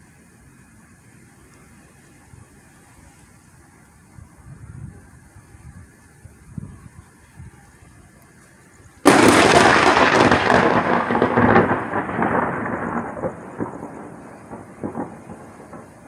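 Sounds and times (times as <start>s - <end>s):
thunder crack and rumble: 9.0s - 16.0s.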